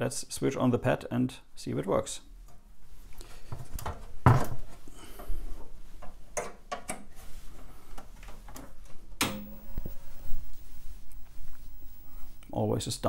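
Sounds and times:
computer handled clicks and knocks: 9.2s - 9.9s.

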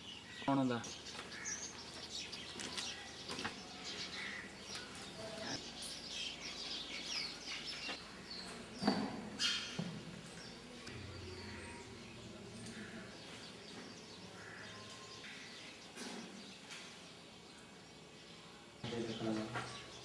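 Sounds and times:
small birds chirping: 0.0s - 20.0s.

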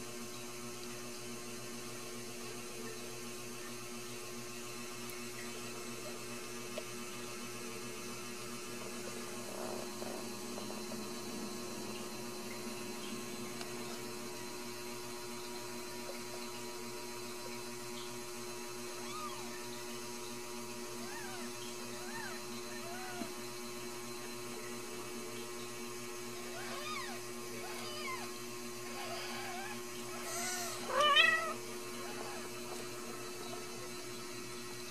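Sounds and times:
electrical hum: 0.0s - 34.9s
kittens mewing: 28.9s - 32.5s.

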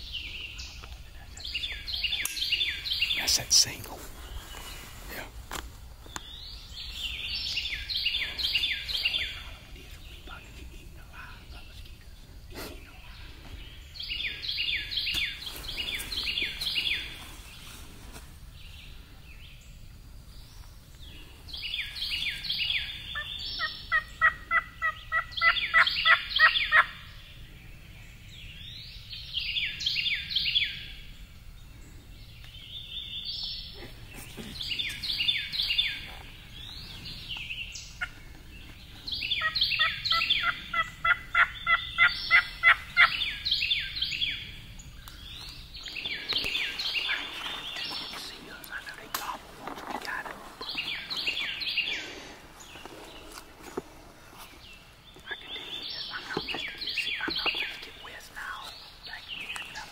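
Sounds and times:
turkeys gobbling: 23.1s - 27.0s, 39.4s - 43.3s.

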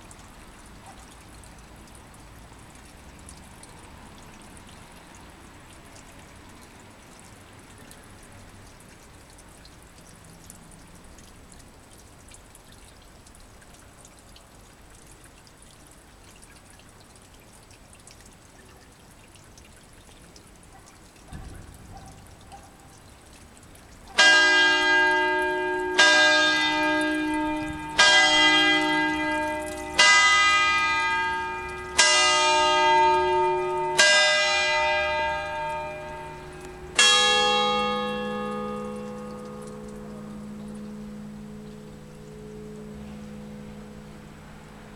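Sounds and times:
church bell tolling: 24.2s - 44.9s
lower church bell ringing: 24.2s - 44.9s.

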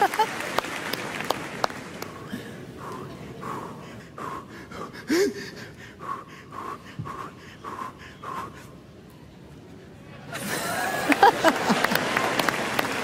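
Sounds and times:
man huffing and gasping: 2.2s - 8.7s.

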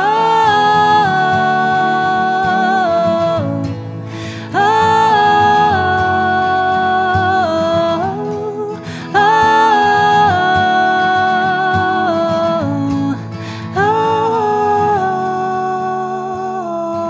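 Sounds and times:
man and woman singing: 0.0s - 17.0s
strummed acoustic guitars: 0.0s - 17.0s.

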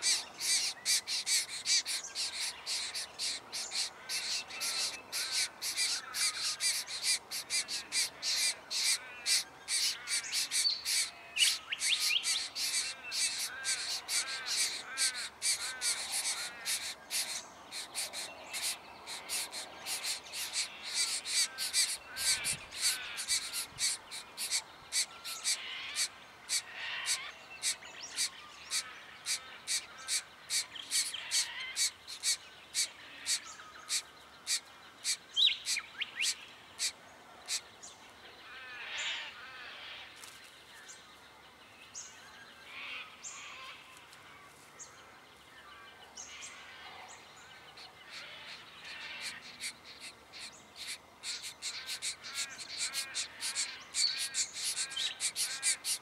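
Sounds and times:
nestlings begging calls: 0.0s - 37.7s, 47.8s - 56.0s.

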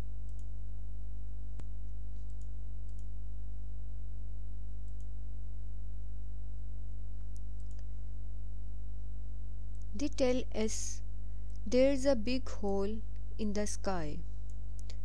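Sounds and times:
low electrical hum: 0.0s - 15.0s
faint clicks: 7.2s - 7.9s.

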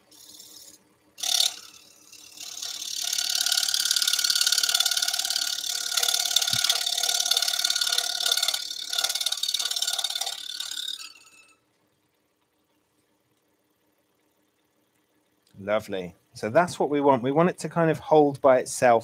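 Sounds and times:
scroll saw cutting wood: 0.0s - 11.6s.

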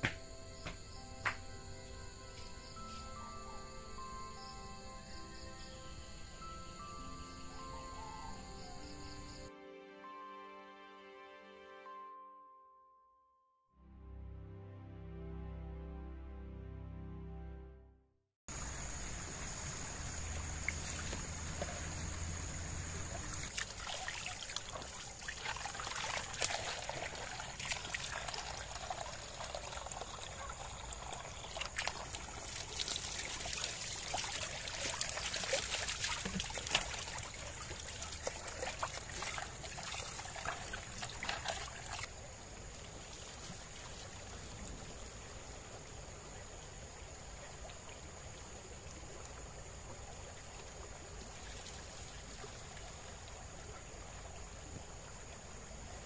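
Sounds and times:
night insects droning: 0.0s - 9.5s, 18.5s - 56.0s
water trickling over stones: 18.5s - 46.8s, 47.6s - 55.8s.

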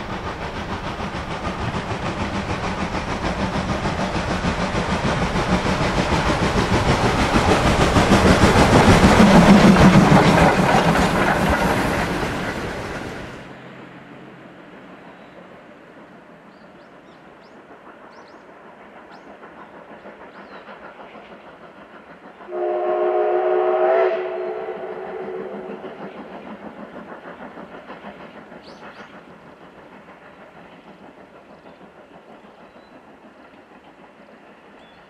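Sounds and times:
steam locomotive chugging: 0.0s - 35.0s
steam whistle blast: 22.5s - 25.8s.

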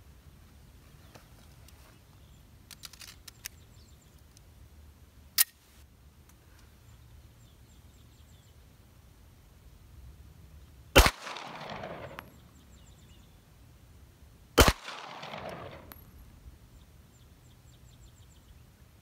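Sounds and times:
pistol metallic clicks: 5.4s - 5.6s, 11.0s - 12.3s, 14.6s - 16.1s.

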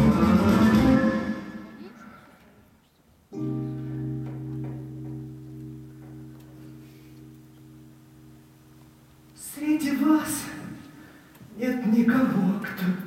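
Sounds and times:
low keyboard chord: 3.3s - 10.4s.

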